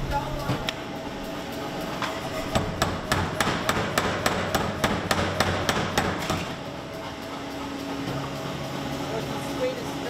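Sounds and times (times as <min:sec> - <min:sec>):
power hammer pounding steel: 0:02.5 - 0:06.6.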